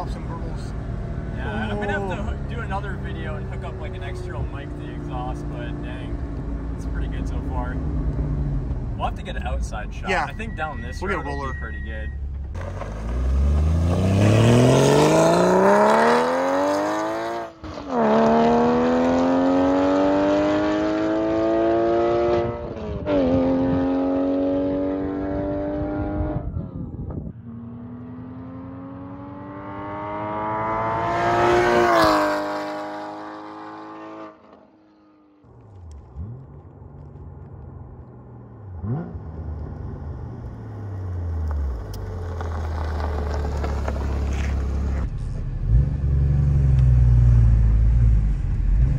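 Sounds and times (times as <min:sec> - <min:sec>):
sports car engine accelerating hard: 0:00.0 - 0:10.0, 0:12.6 - 0:37.7, 0:38.5 - 0:48.9.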